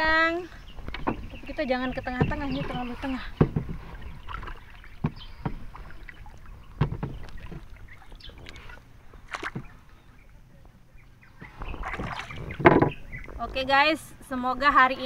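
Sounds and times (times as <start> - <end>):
low wash of water: 0.0 - 14.3
paddle knocking against canoe hull: 0.8 - 9.8, 11.3 - 13.4.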